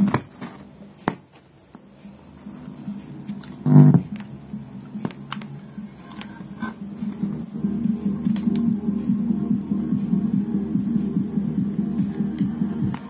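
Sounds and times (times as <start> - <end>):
short speaker buzz: 3.6 - 4.0.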